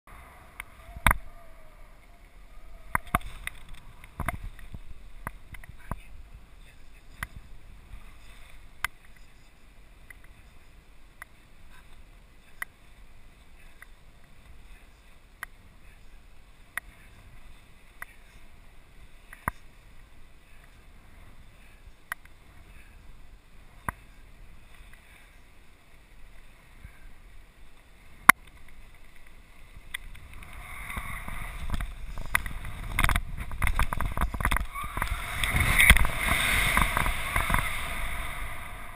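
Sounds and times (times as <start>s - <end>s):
wind rushing: 29.8s - 38.9s.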